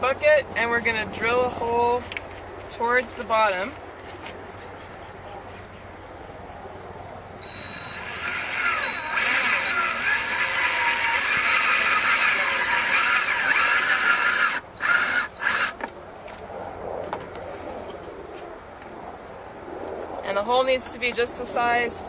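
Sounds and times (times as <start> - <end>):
cordless drill boring plastic: 7.4 - 15.8.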